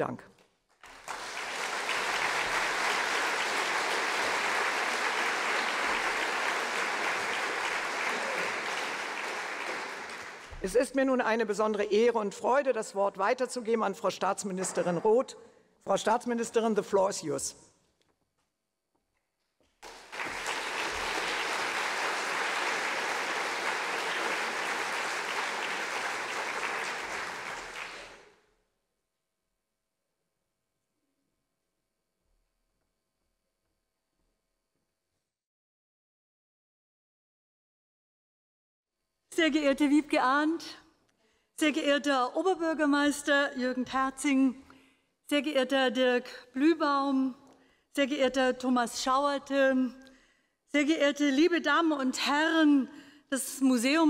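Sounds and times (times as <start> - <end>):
audience applauding: 0.8 - 10.8, 19.8 - 28.4.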